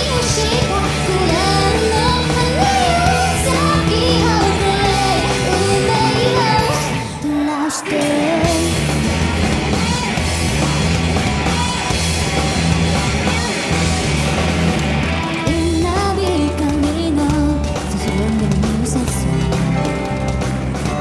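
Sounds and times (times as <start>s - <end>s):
woman singing: 0.0s - 8.8s, 15.4s - 20.0s
live rock band playing: 0.0s - 21.0s.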